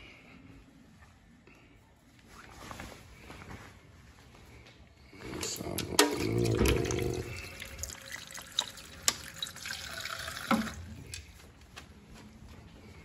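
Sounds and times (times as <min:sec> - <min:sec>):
tap water splashing into pot: 0:05.8 - 0:10.9.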